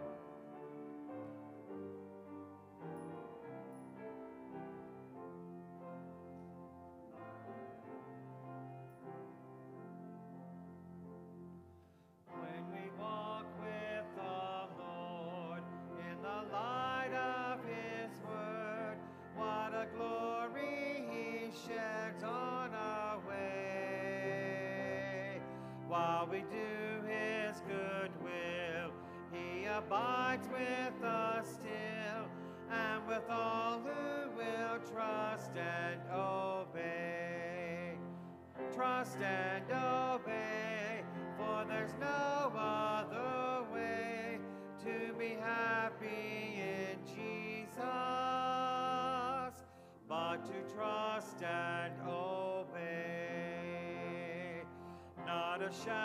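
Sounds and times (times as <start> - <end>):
piano accompaniment: 0.0 - 56.0
man singing a hymn: 12.3 - 56.0.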